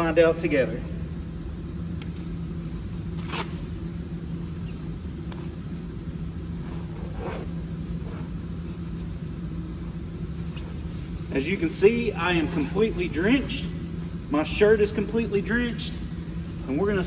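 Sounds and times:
steady low hum: 0.0s - 17.0s
heavy zipper rasping open: 6.6s - 8.3s.

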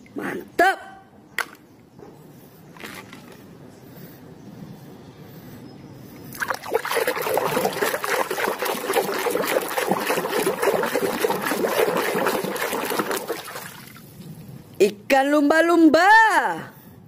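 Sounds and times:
toy sloshing in muddy water: 6.3s - 14.2s.

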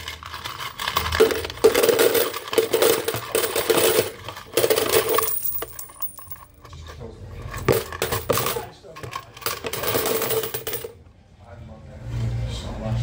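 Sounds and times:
coins clinking: 0.0s - 6.6s, 7.5s - 11.0s.

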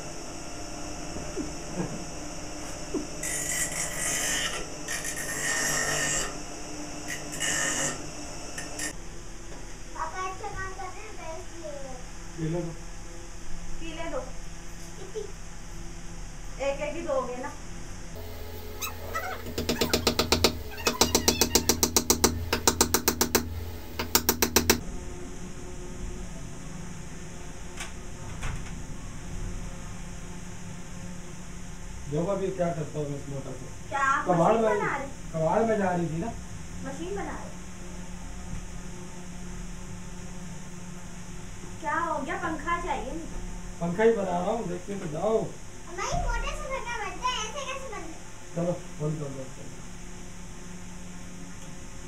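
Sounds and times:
low room hum: 0.0s - 52.0s
bench grinder humming: 2.1s - 8.9s, 18.2s - 24.8s
wood grinding on wheel: 3.2s - 6.4s, 7.1s - 8.9s
faint knocks: 18.2s - 24.8s
hammer driving nail into wood: 19.1s - 24.8s.

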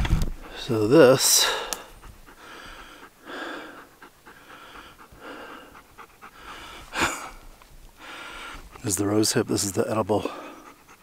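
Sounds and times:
soft breathing: 0.4s - 8.9s.

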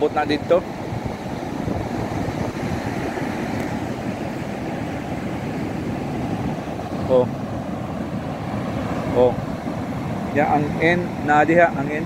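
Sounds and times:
surf breaking on beach: 0.0s - 12.0s
wind buffeting microphone: 0.0s - 12.0s.

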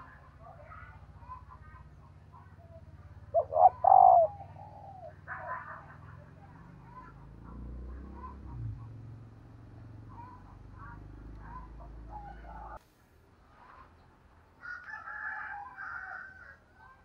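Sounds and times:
rooster crowing: 14.6s - 16.7s.

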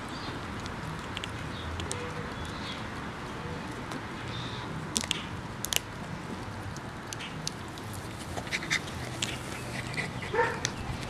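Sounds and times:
dog gnawing wooden stick: 0.0s - 11.0s
wood cracking between teeth: 0.0s - 11.0s.

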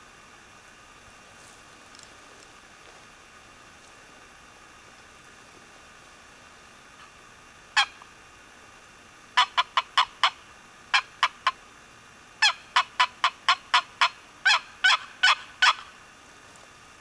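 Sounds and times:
turkey call yelps: 7.8s - 8.0s, 9.4s - 11.6s, 12.4s - 16.0s.

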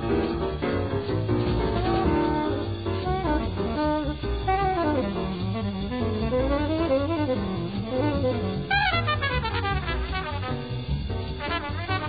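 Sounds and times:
double bass: 0.0s - 12.0s
horn fast high run: 1.7s - 10.8s, 11.4s - 12.0s
tenor saxophone solo: 1.8s - 10.5s, 11.5s - 12.0s.

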